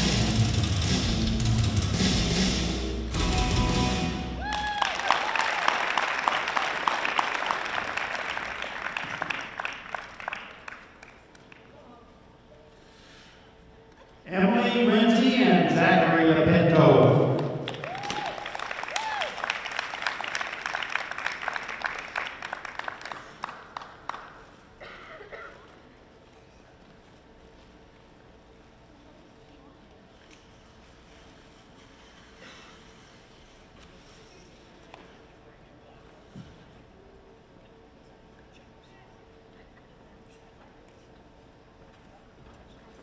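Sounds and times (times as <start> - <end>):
high cheer: 4.3 - 8.3, 17.4 - 21.0
audience applauding: 4.4 - 11.7, 17.3 - 24.7.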